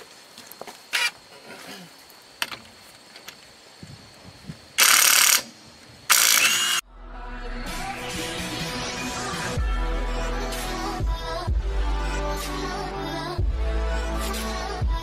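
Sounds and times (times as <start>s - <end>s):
impact wrench bursts: 4.8s - 5.5s, 6.1s - 6.8s
electronic music: 6.8s - 15.0s.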